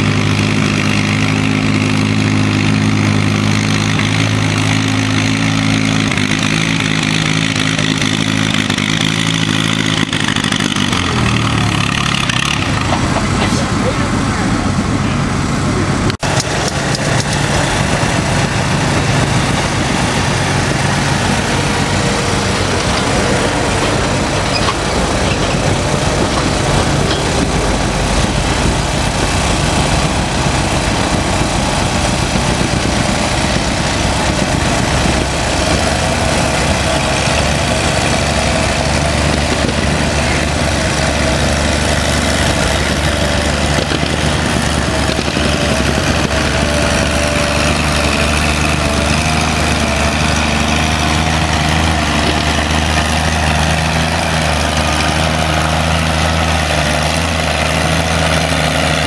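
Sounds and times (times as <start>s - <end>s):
tractor engine under load: 0.0s - 59.0s.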